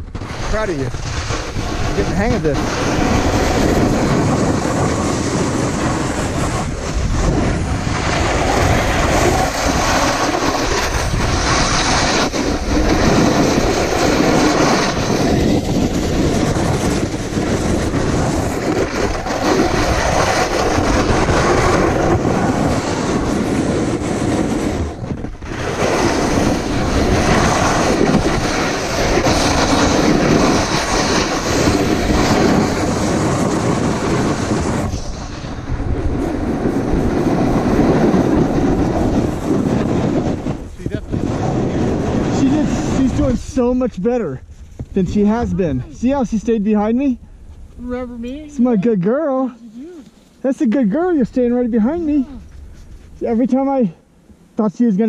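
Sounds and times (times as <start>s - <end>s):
snowboard scraping icy snow: 0.0s - 44.0s.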